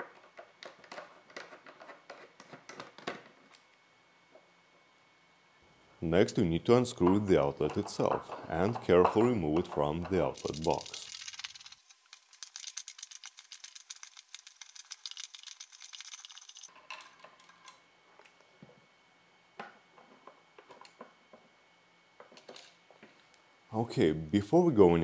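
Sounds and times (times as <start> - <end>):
screwdriver turning metal screws: 10.4 - 16.7.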